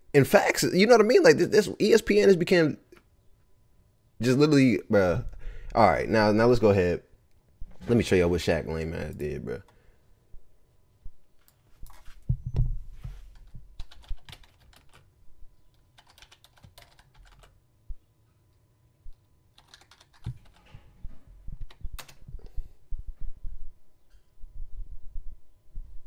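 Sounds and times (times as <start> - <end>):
dull low thumps: 12.2 - 13.8, 21.0 - 26.0
keyboard typing: 13.3 - 15.1, 15.7 - 17.6, 19.1 - 20.8, 21.6 - 22.5.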